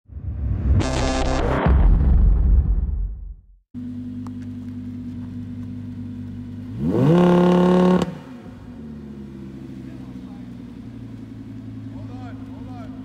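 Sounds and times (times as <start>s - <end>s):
car engine idling and revving: 3.8s - 13.0s.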